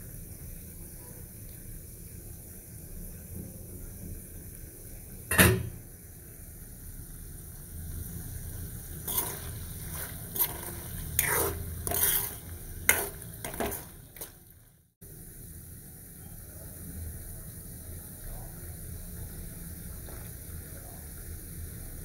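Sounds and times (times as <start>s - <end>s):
spoon scraping metal pot: 9.0s - 14.4s.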